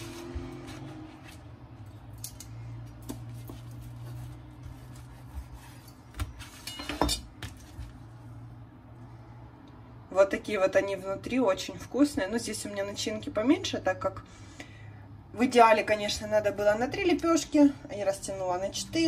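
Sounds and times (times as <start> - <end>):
knife cutting crisp flatbread: 3.0 - 6.6.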